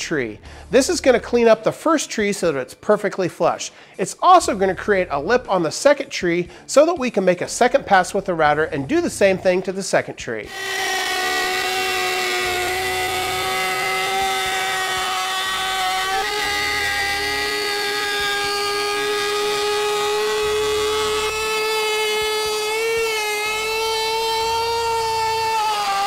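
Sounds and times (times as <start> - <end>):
router whining while cutting wood: 10.5 - 26.0.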